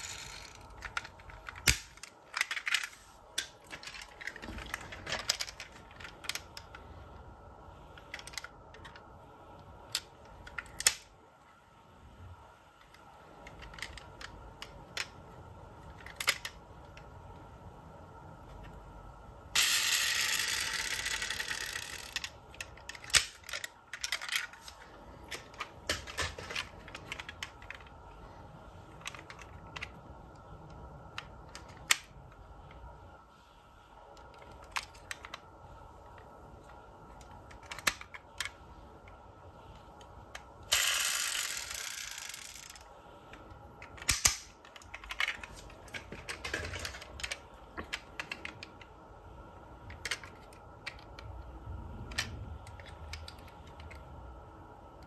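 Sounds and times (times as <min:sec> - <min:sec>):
toy cars clicking and knocking: 0:00.0 - 0:06.8, 0:12.8 - 0:17.1, 0:19.6 - 0:28.0, 0:28.9 - 0:30.0, 0:34.2 - 0:35.5, 0:36.2 - 0:39.2, 0:40.3 - 0:48.9, 0:49.8 - 0:51.4, 0:52.0 - 0:54.0.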